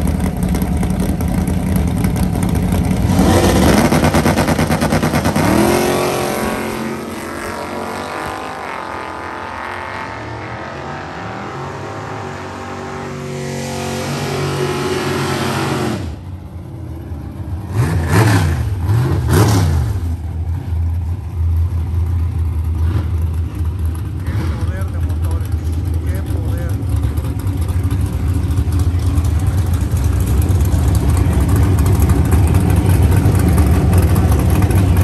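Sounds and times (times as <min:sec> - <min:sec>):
car engine idling and revving: 0:00.0 - 0:35.0
drag cars accelerating: 0:00.0 - 0:35.0.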